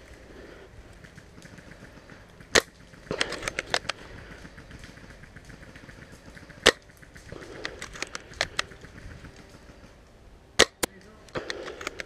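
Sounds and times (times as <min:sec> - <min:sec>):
airsoft rifle shots: 0:01.0 - 0:09.8, 0:10.6 - 0:12.0.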